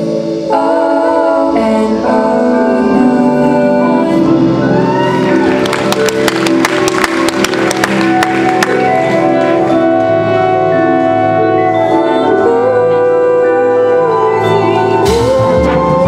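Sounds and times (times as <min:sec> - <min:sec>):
marching band playing: 0:04.3 - 0:16.0.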